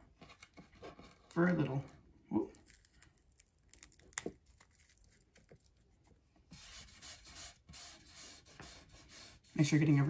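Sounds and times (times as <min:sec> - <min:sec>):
dried root crackling and snapping: 0:01.2 - 0:05.8.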